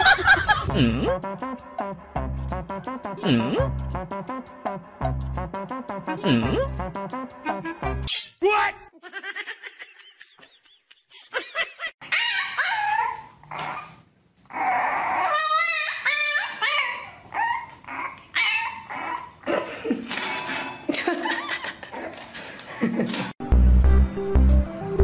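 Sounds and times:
puppy whining and yipping: 0:12.0 - 0:19.5.

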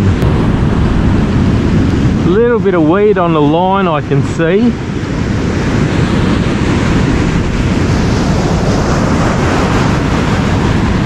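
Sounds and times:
surf breaking on a beach: 0:00.0 - 0:11.0
wind buffeting microphone: 0:00.0 - 0:11.0.

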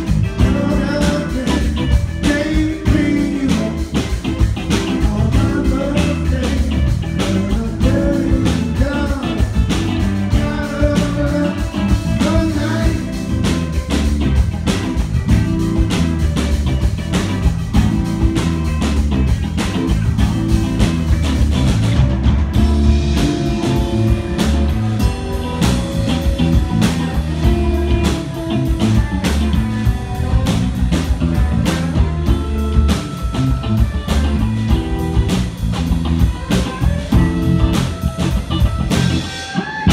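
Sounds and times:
drum kit: 0:00.0 - 0:39.9
electric guitars: 0:00.0 - 0:39.9
person singing: 0:00.2 - 0:04.1, 0:04.8 - 0:13.6.

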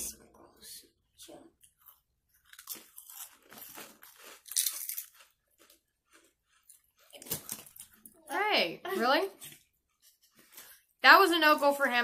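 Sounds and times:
chips crunching while chewed: 0:01.6 - 0:08.2.

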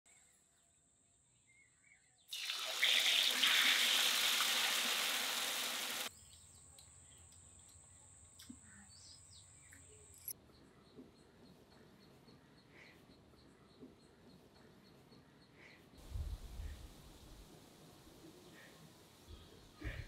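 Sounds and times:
water rushing: 0:02.4 - 0:06.1
faint chirps and clicks: 0:06.2 - 0:15.8.

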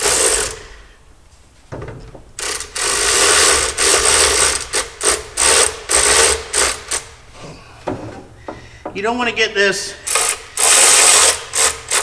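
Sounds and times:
power ratchet driving bolts: 0:00.0 - 0:00.6, 0:02.4 - 0:07.1, 0:10.1 - 0:12.0.

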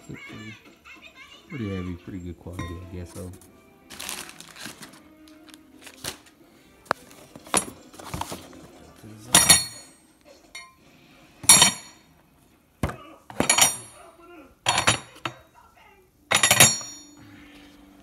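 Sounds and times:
metal parts clinking: 0:09.3 - 0:10.0, 0:13.4 - 0:14.0, 0:14.6 - 0:15.4, 0:16.3 - 0:17.2.

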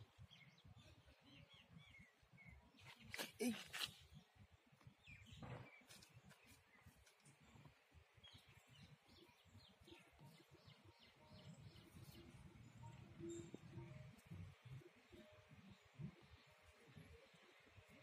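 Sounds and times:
faint bird chirps: 0:05.0 - 0:18.0.

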